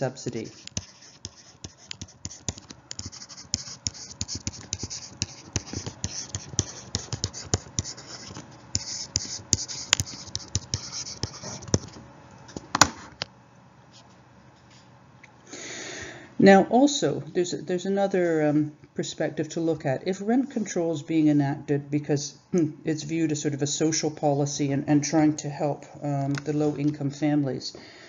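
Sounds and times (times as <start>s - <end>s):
scratchy rubbing: 0.3s - 12.0s
pen taps and clicks: 0.6s - 11.9s.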